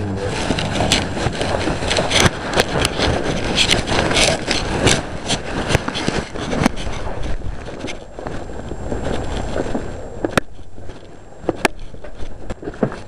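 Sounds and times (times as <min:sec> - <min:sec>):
phone rubbing against clothing: 0:00.0 - 0:10.0
sharp clicks and knocks: 0:00.2 - 0:08.4.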